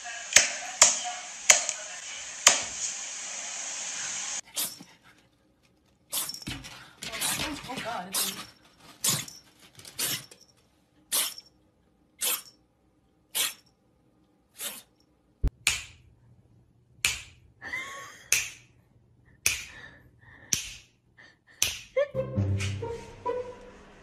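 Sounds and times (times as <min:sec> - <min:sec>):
kitten sneezing: 0:11.1 - 0:11.5, 0:12.2 - 0:12.5, 0:13.3 - 0:13.6, 0:14.6 - 0:14.9.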